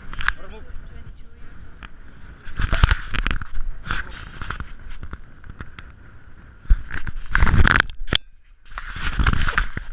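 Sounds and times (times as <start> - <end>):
clothing rubbing on camera: 2.4 - 5.7, 8.6 - 9.9.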